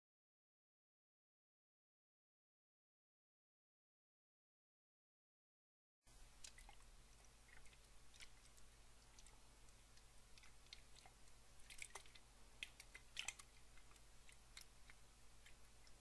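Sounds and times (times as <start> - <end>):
small water drips: 6.1 - 16.0.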